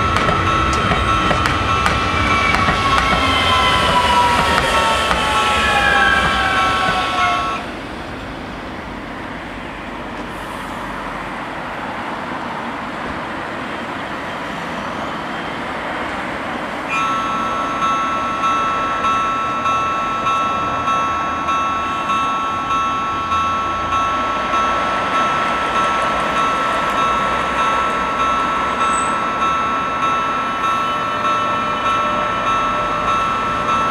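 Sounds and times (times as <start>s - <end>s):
level crossing bells ringing: 0.0s - 7.6s, 16.9s - 33.9s
rumble of traffic: 0.0s - 33.9s.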